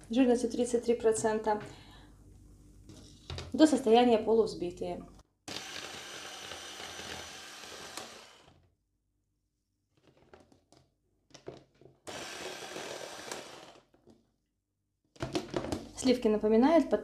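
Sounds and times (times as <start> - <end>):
electric hand mixer running: 5.5 - 8.6, 12.1 - 13.8.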